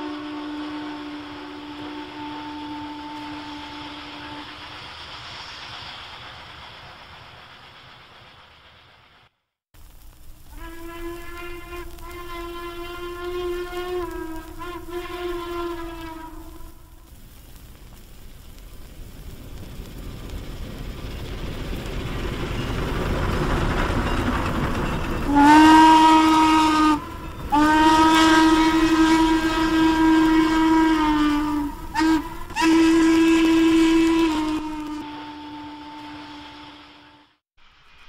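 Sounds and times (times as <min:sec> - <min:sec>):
steam whistle blasts: 0:00.0 - 0:04.8, 0:10.5 - 0:17.1, 0:25.2 - 0:37.4
steam locomotive running: 0:00.0 - 0:38.0.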